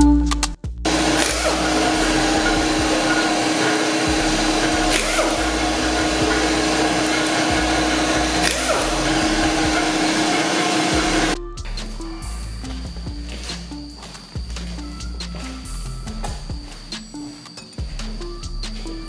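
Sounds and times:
air compressor humming and hissing: 0.9s - 11.4s.

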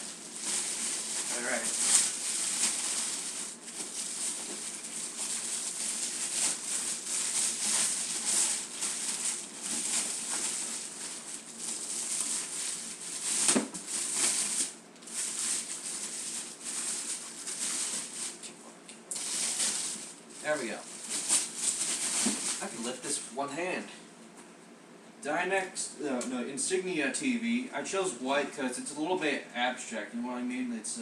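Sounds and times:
plastic wrapping crinkling: 0.0s - 18.5s, 19.1s - 22.9s.

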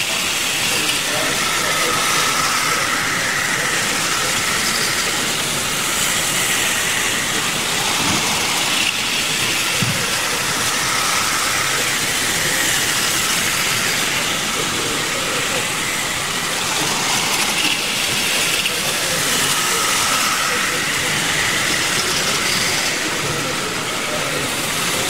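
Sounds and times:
model train motor whine: 0.0s - 25.0s.

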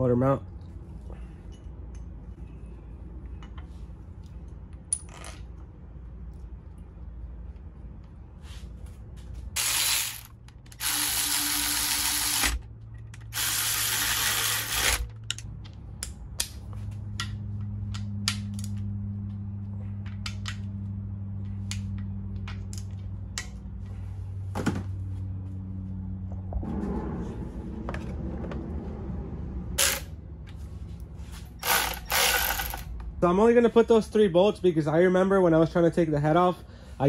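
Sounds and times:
steady low hum: 0.0s - 37.0s
cordless power tool running bolts: 9.6s - 12.6s, 13.2s - 15.2s, 29.8s - 30.1s, 31.6s - 32.9s.

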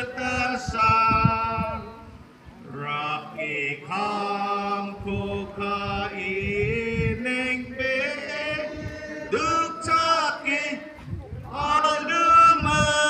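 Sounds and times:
chant-like singing: 0.0s - 13.0s.

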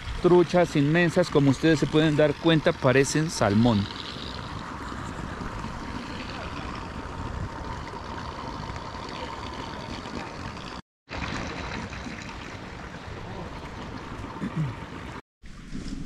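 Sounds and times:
water trickling: 0.0s - 15.2s
wind buffeting microphone: 3.6s - 9.0s.

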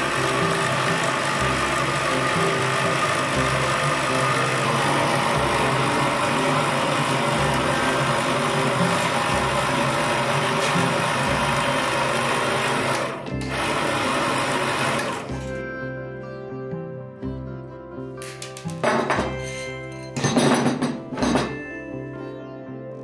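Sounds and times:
electric motor running: 0.0s - 15.5s.

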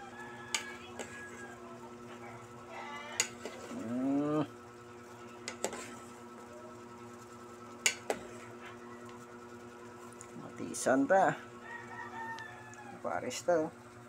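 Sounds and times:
faint hum: 0.0s - 14.0s
metal ladle clinking on pot: 7.8s - 8.2s.

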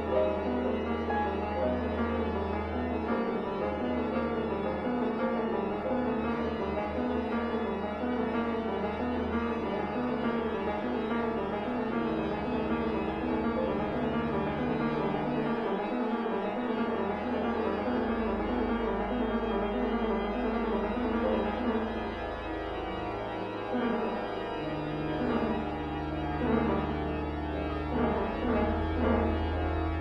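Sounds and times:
organ playing: 0.0s - 30.0s.

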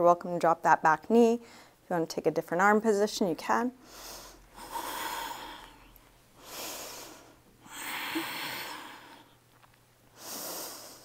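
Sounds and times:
woman breathing slowly: 3.8s - 9.5s, 10.1s - 11.0s.

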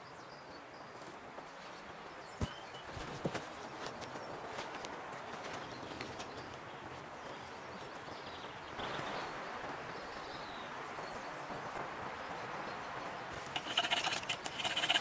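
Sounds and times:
faint bird calls: 13.3s - 15.0s.

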